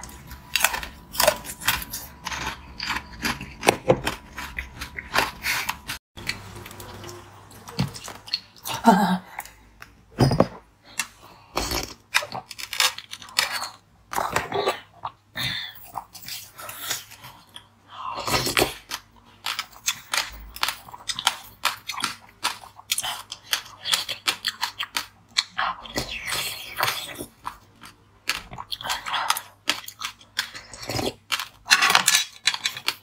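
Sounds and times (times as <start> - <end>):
ice crunching and chewing: 0.0 - 8.7, 11.0 - 33.0.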